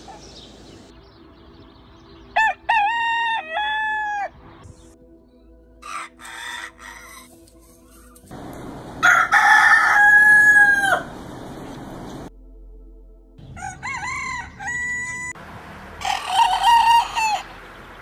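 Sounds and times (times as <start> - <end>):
roosters crowing: 2.4 - 4.4, 5.8 - 7.3, 8.3 - 12.3, 13.4 - 15.4, 16.0 - 17.6.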